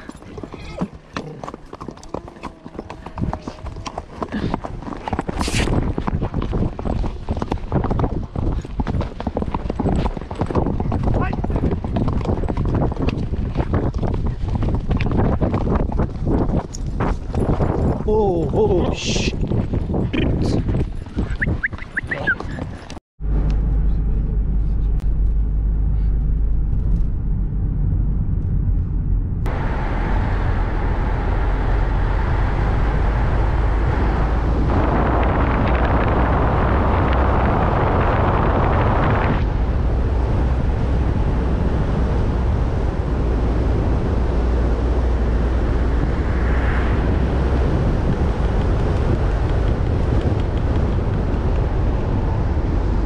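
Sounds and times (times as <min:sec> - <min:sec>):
engine and tyres rumbling: 0:00.0 - 0:53.0
wind rushing over microphone: 0:02.0 - 0:53.0.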